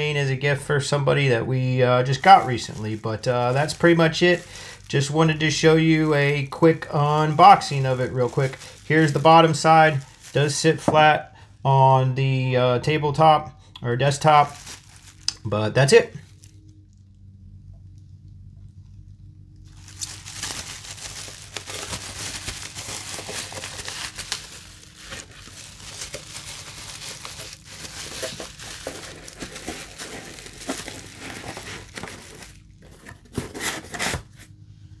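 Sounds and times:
bubble wrap crinkling: 1.8 - 10.9, 14.1 - 17.2, 19.6 - 34.3
cardboard box handled: 21.2 - 34.4.

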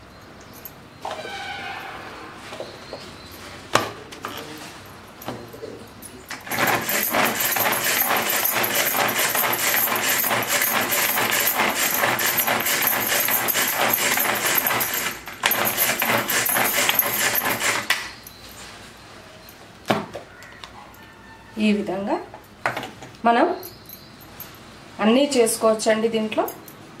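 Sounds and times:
hand chopper blades rattling: 6.3 - 18.2.

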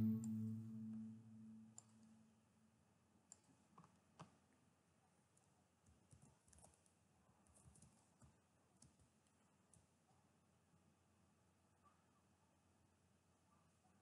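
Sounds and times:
synth note: 0.0 - 1.8
computer mouse clicks: 3.3 - 4.4, 5.4 - 9.9.

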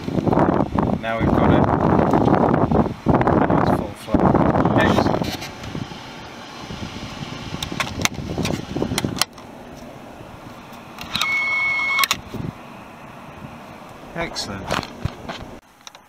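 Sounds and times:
heater blower air noise: 0.0 - 15.6
steady high-pitched tone: 9.5 - 15.0.

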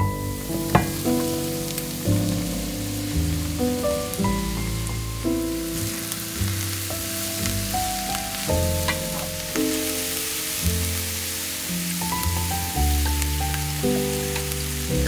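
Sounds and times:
background music with bass: 0.0 - 15.0
vegetables sizzling in a pan: 5.7 - 14.9
wooden spatula scraping: 8.8 - 9.5.

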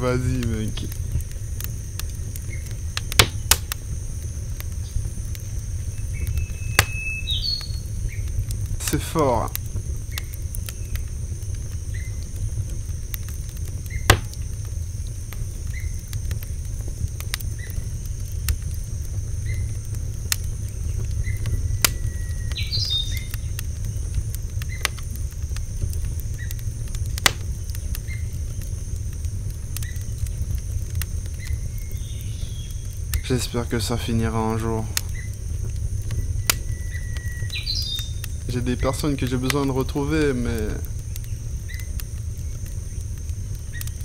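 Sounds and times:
high insect drone: 0.0 - 44.0
low rumble: 0.0 - 44.0
sharp clicks: 0.4 - 3.8, 6.2 - 7.0, 13.1 - 14.8, 20.3 - 23.7, 26.4 - 27.9.

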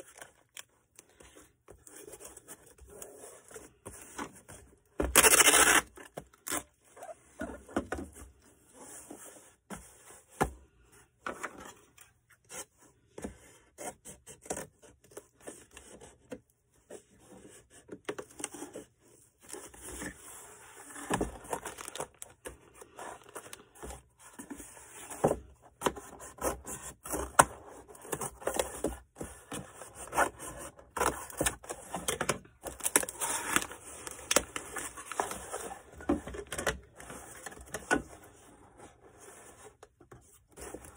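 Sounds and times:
tape being handled: 5.0 - 7.1
packing material rustling: 20.7 - 23.6.

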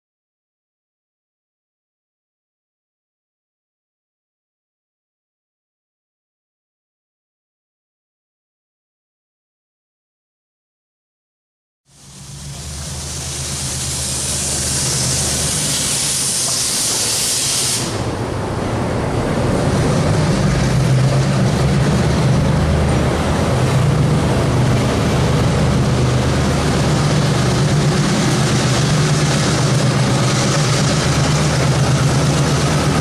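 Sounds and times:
loud hiss: 11.9 - 18.2
locomotive diesel engine drone: 11.9 - 33.0.

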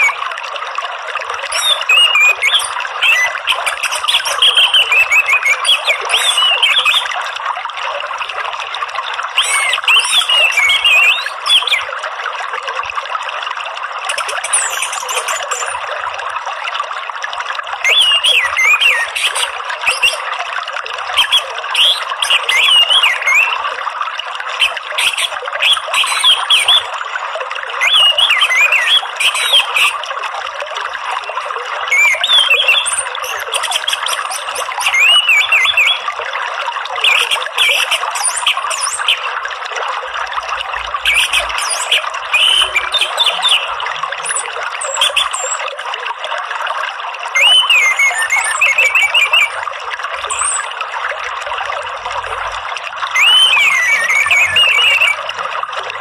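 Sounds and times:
songbirds chirping and whistling: 0.0 - 0.2, 1.4 - 7.2, 9.3 - 11.9, 14.1 - 15.9, 17.8 - 20.3, 21.2 - 23.6, 24.6 - 26.9, 27.8 - 30.0, 31.8 - 36.1, 37.0 - 39.4, 41.0 - 45.6, 47.4 - 49.6, 50.2 - 50.8, 53.1 - 55.2
running water: 0.0 - 56.0.

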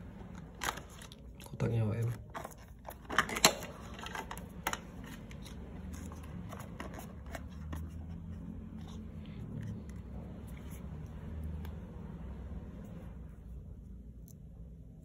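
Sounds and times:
steady low hum: 0.0 - 15.0
packaging clicks and rustles: 2.1 - 8.3.

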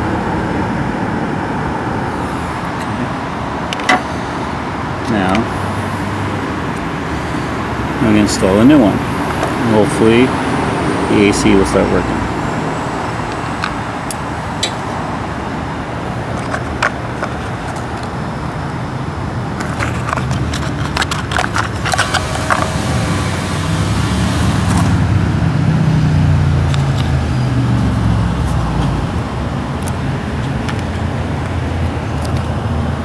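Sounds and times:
road traffic noise: 0.0 - 33.0
vehicle passing: 0.0 - 33.0
plastic parts clicking: 19.6 - 22.7.

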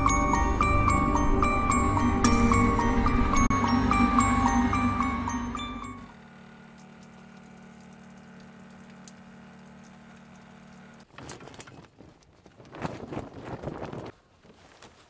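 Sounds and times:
music: 0.0 - 6.1
electric water pump humming: 0.0 - 11.3
shower spraying: 6.3 - 11.0
tent fabric rustling: 11.1 - 15.0.

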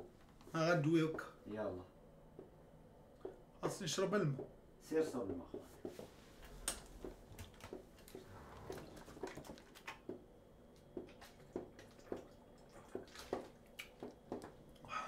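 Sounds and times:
person gulping water: 10.8 - 14.9.

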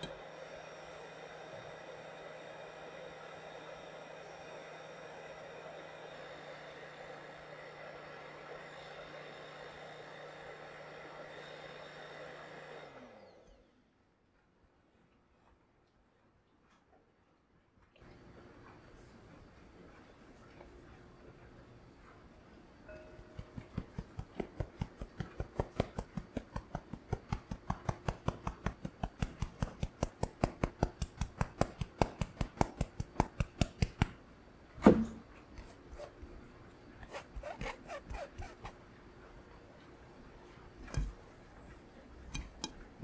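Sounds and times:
mesh sieve tapping: 42.3 - 42.9.

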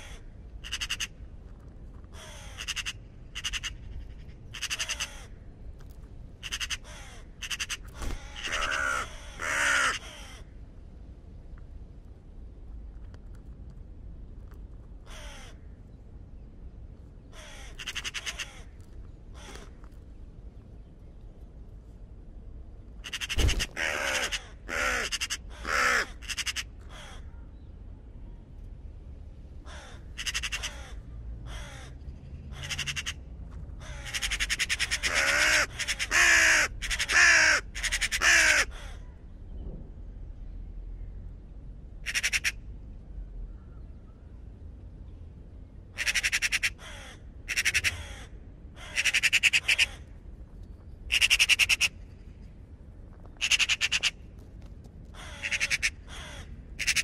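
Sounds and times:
raven croaking caws: 0.0 - 1.2, 2.0 - 5.6, 6.4 - 10.6, 15.0 - 15.8, 17.3 - 19.9, 23.0 - 27.5, 29.6 - 39.2, 42.0 - 42.7, 45.9 - 50.1, 51.1 - 52.0, 53.3 - 54.3, 55.1 - 57.0.

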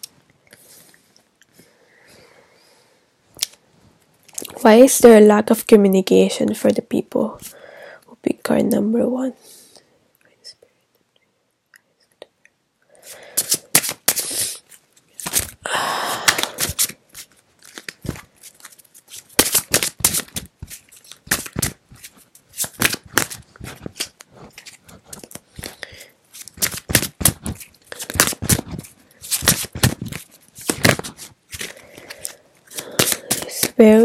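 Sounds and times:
cards riffling: 13.1 - 15.6, 16.2 - 34.0
card slaps and snaps: 13.4 - 14.3, 15.2 - 15.6, 16.2 - 18.3, 19.2 - 21.8, 22.6 - 25.8, 26.4 - 33.8.

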